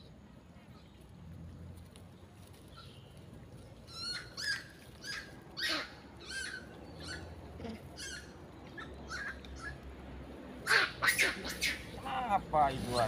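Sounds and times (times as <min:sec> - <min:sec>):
macaques squealing: 0:03.9 - 0:09.8, 0:10.6 - 0:12.2.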